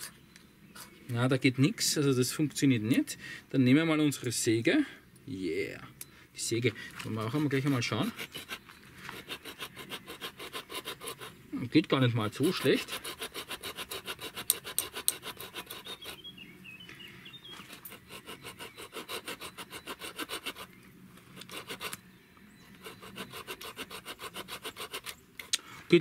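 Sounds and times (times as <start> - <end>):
small saw cutting wood: 7.7 - 11.4, 12.2 - 16.3, 17.6 - 20.7, 21.4 - 22.0, 22.7 - 25.2.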